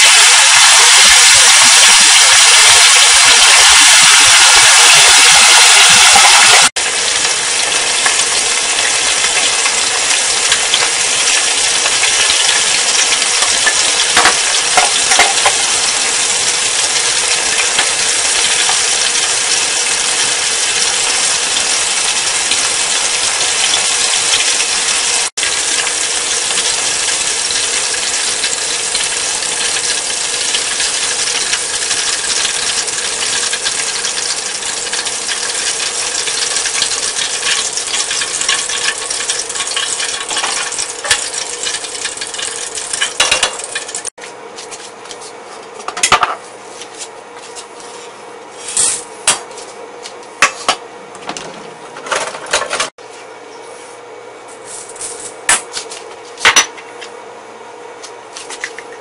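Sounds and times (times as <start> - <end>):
oil sizzling and bubbling: 0.0 - 45.0.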